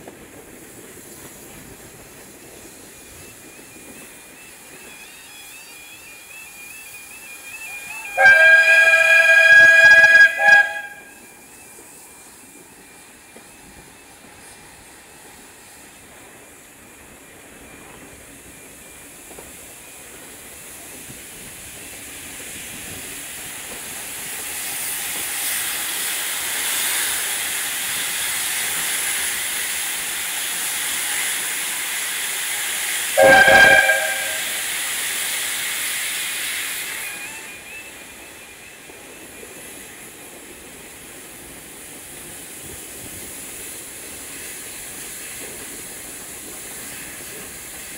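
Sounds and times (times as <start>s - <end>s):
steam hissing: 0.0s - 47.9s
steam whistle blasts: 3.0s - 14.6s, 23.6s - 39.9s.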